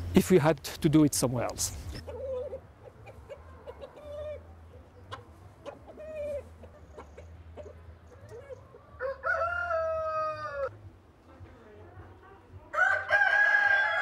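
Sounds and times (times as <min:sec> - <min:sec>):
chickens clucking softly: 0:01.9 - 0:09.1.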